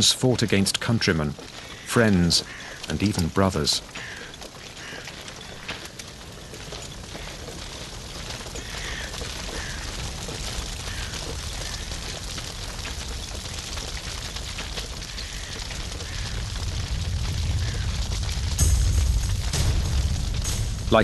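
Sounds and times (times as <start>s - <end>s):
steady rushing noise: 6.3s - 21.0s
deep rumble: 7.9s - 21.0s.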